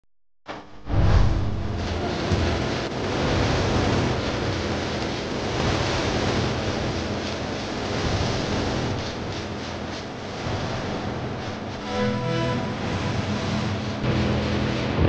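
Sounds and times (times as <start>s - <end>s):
low hum: 0.5s - 15.0s
whooshing rushing noise: 0.6s - 4.7s.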